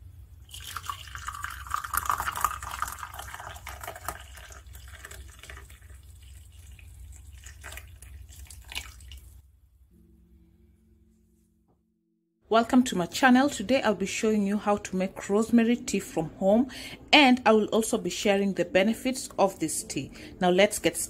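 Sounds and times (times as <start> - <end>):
tea pouring into ceramic cup: 0.5 - 9.2.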